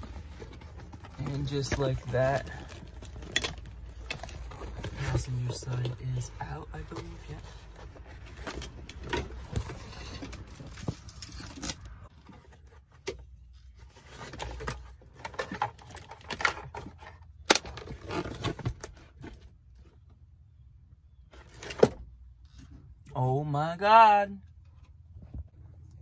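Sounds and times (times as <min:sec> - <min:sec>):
carpet rustling and scraping: 0:00.0 - 0:20.2.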